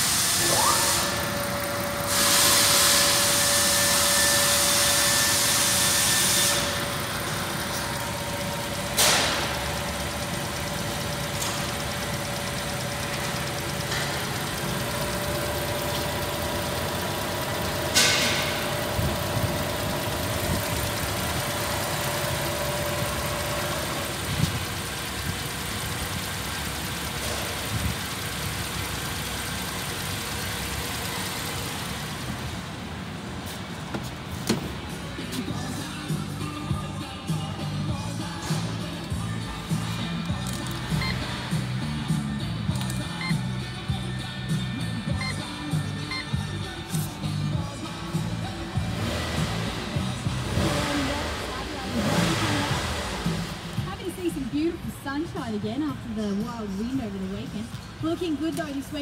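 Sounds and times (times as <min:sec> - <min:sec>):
loud hiss: 0:00.0 - 0:07.0
car engine idling: 0:00.0 - 0:59.0.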